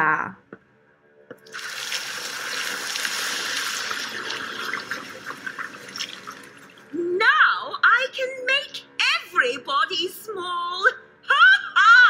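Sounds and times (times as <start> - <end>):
liquid running from a tap: 1.5 - 6.9.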